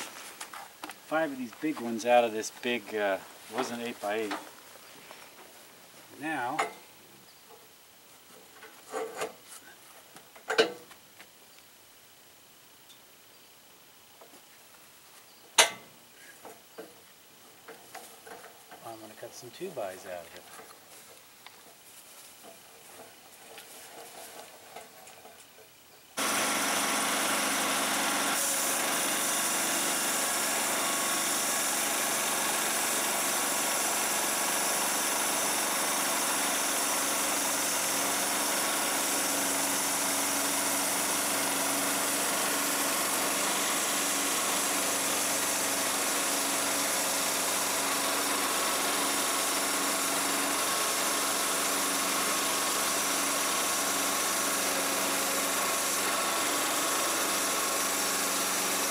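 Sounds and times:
sawmill gasoline engine running: 0.0 - 4.6, 18.0 - 21.0, 26.2 - 58.9.

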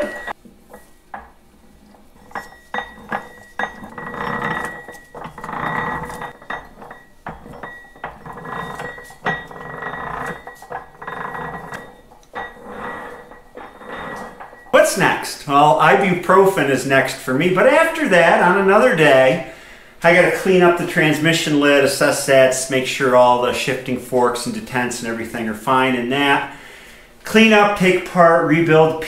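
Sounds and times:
metal clinks and knocks: 0.0 - 15.0.

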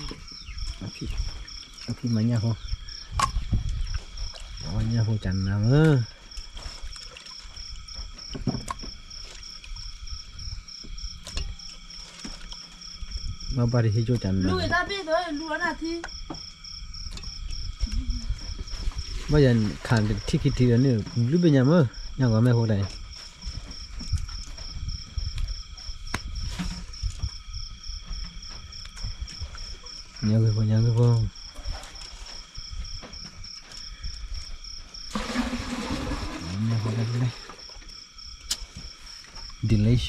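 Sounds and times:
insect pulsing chirp: 0.0 - 40.0
insects trilling: 0.0 - 40.0.

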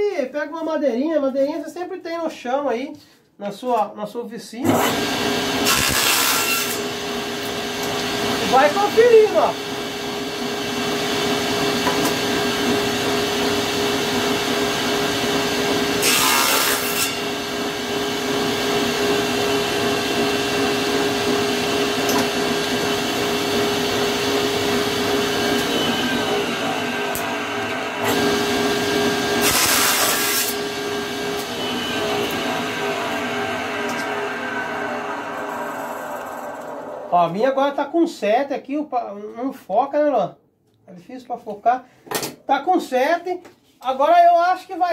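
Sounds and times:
saw blade cutting wood: 4.7 - 9.3, 15.6 - 18.6, 24.6 - 37.3
table saw humming: 4.7 - 37.7.

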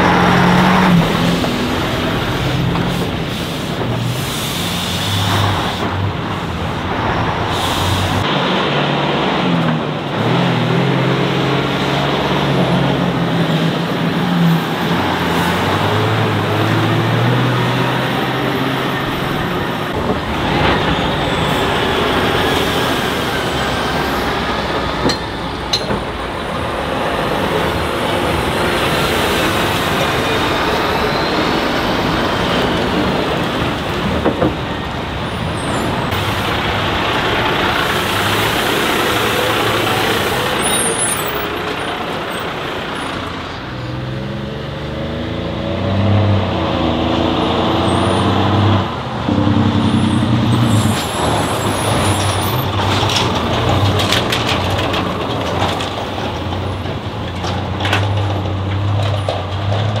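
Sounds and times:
diesel engine pulling: 0.0 - 60.0
truck tyre and road noise: 0.0 - 60.0.

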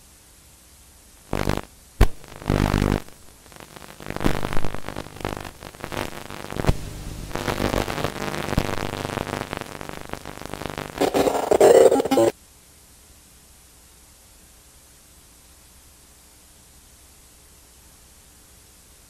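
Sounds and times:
electronic static and glitch noise: 1.3 - 12.3.

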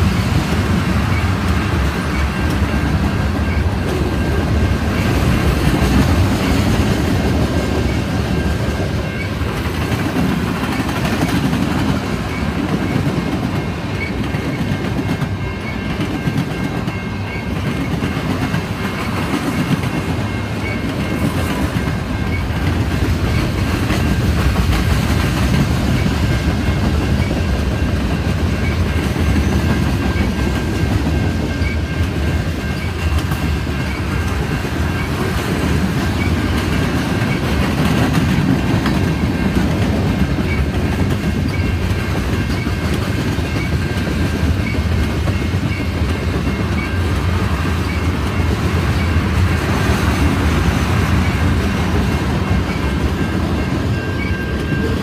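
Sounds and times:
steel wheels rumbling on rails: 0.0 - 55.0.

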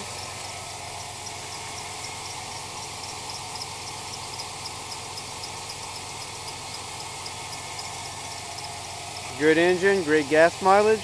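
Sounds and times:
engine idling: 0.0 - 11.0
high-pitched engine ticking: 0.0 - 11.0.

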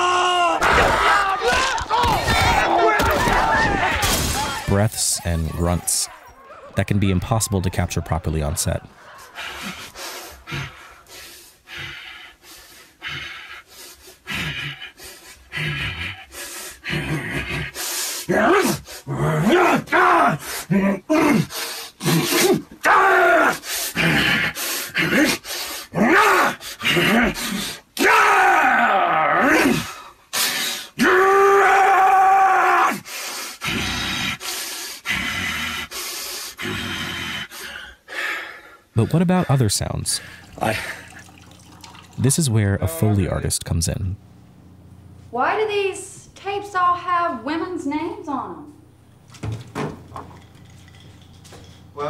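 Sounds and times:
man panting and grunting: 4.6 - 22.8, 23.5 - 27.9
man breathing sharply: 37.5 - 38.9.

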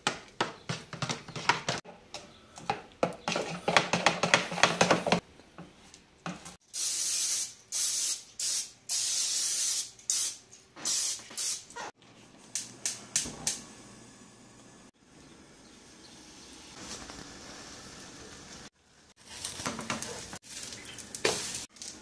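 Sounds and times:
aerosol spray can hissing: 6.8 - 11.6.

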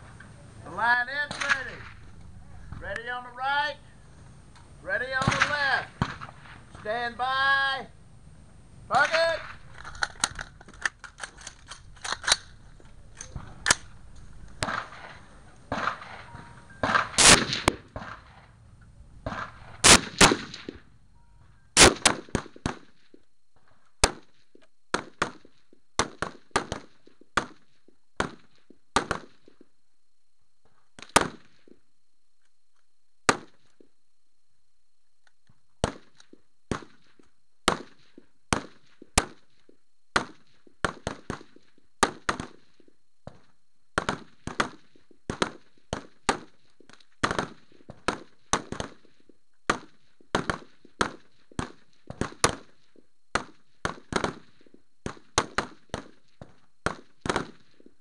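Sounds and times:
rifle shots cracking: 1.3 - 2.8, 5.1 - 6.7, 8.9 - 18.6, 19.2 - 20.9, 21.8 - 23.0.

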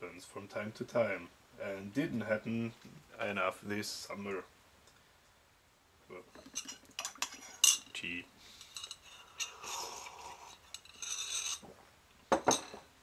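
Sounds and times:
slurping tea from a mug: 9.0 - 11.4.

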